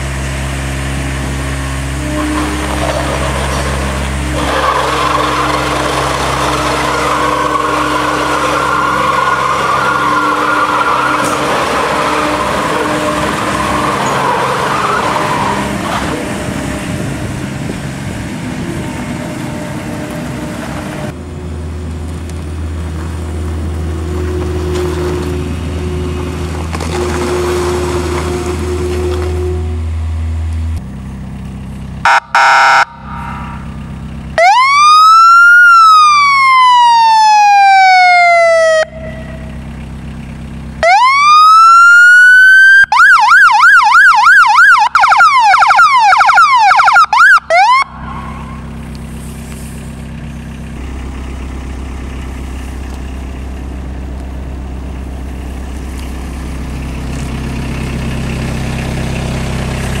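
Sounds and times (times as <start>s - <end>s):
vehicle engine idling: 0.0s - 34.9s, 38.4s - 41.3s, 46.8s - 60.0s
horn blasts: 1.9s - 16.9s, 24.0s - 30.3s, 32.0s - 34.0s
siren wailing and yelping: 4.3s - 15.9s, 32.1s - 33.6s, 34.4s - 39.3s, 40.8s - 48.6s.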